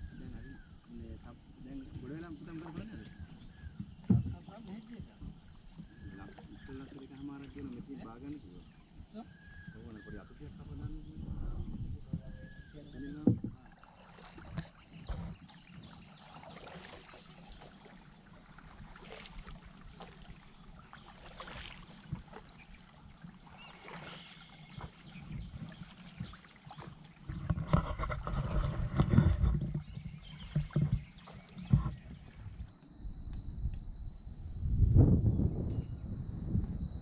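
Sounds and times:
water lapping: 0:00.0 - 0:32.8
paddle splashes: 0:00.0 - 0:32.9.

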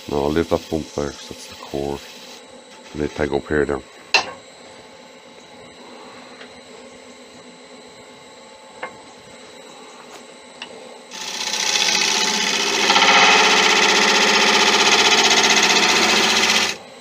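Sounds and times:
lathe motor hum: 0:11.1 - 0:16.8.

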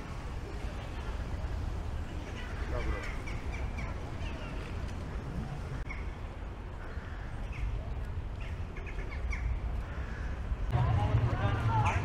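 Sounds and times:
low rumble of city ambience: 0:00.0 - 0:12.0
birds calling: 0:02.1 - 0:10.6.

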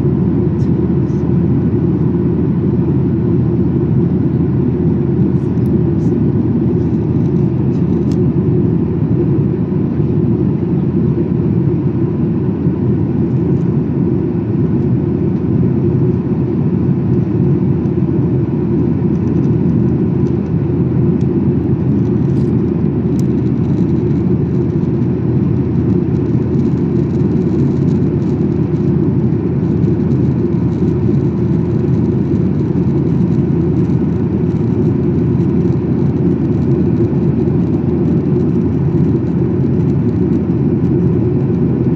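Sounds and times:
airplane cabin rumble: 0:00.0 - 0:41.9.

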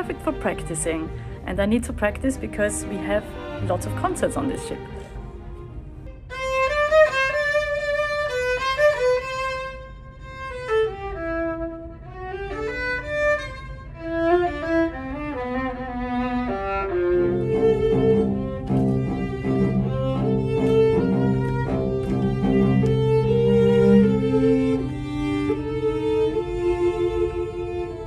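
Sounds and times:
cello sustained low notes: 0:00.0 - 0:28.0
solo violin melody: 0:00.0 - 0:28.0.

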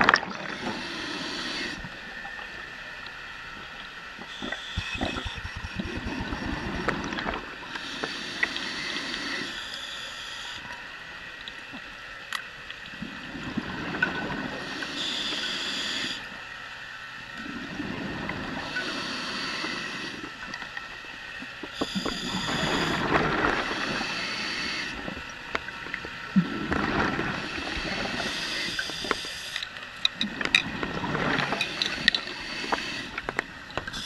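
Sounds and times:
regulator inhale hiss: 0:00.5 - 0:02.0, 0:07.7 - 0:10.7, 0:14.5 - 0:16.4, 0:18.6 - 0:20.4, 0:21.7 - 0:25.2, 0:27.4 - 0:29.7, 0:31.5 - 0:33.3.

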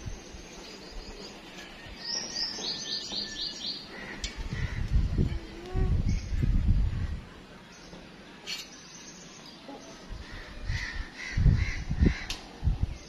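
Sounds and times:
wind rumbling on microphone: 0:03.9 - 0:07.5, 0:10.0 - 0:13.0
faint crow caws: 0:10.2 - 0:12.4.

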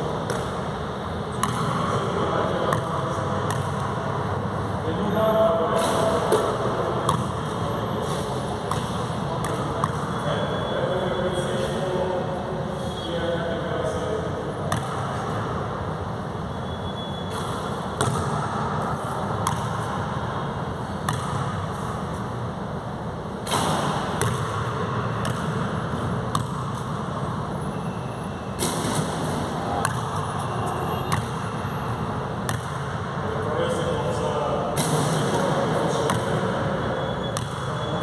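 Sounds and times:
steady background noise: 0:00.0 - 0:38.0
basketball bouncing on court: 0:00.1 - 0:00.7, 0:01.3 - 0:04.0, 0:06.3 - 0:10.2, 0:14.7 - 0:15.6, 0:16.8 - 0:22.0, 0:23.4 - 0:27.9, 0:28.6 - 0:33.2, 0:34.8 - 0:38.0
basketball striking rim: 0:01.3 - 0:01.9, 0:17.3 - 0:18.8, 0:19.4 - 0:20.1, 0:21.0 - 0:21.6, 0:23.4 - 0:26.9, 0:28.6 - 0:30.2, 0:31.0 - 0:31.4, 0:32.4 - 0:32.9, 0:34.8 - 0:36.4, 0:37.3 - 0:37.7.

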